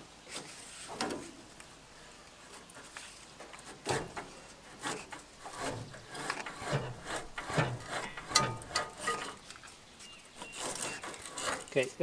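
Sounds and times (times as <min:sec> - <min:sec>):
dull thumps: 0:05.5 - 0:09.4.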